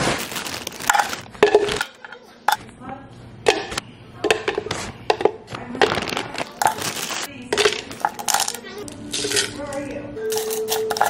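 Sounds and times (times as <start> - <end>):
plastic bag rustling: 0.0 - 2.0, 5.6 - 11.0.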